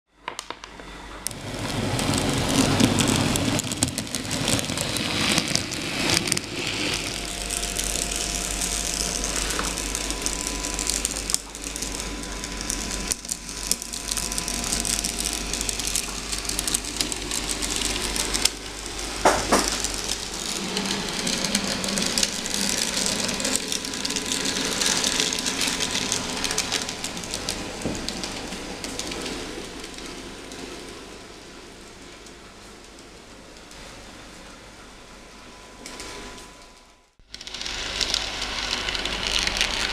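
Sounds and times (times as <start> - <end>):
model tram wheels rattling on rail: 1.3 - 29.5.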